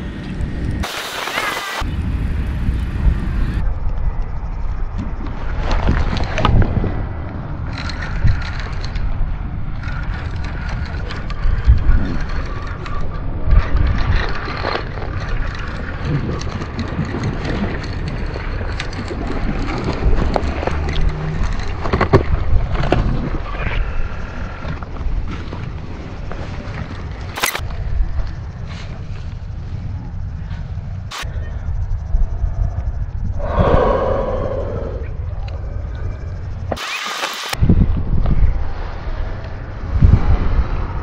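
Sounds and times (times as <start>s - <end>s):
wind rumbling on microphone: 0.0s - 36.8s, 37.5s - 41.0s.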